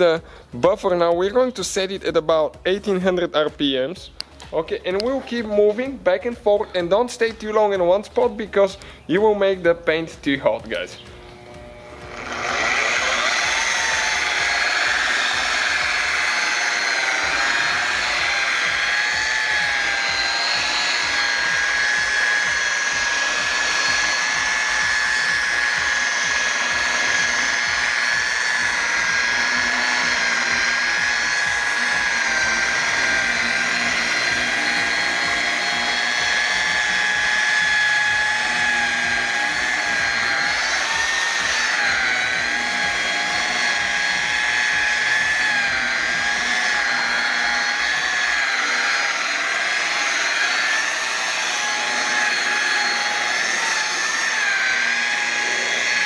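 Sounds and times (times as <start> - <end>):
rotary polisher motor whine: 0.0 - 56.0.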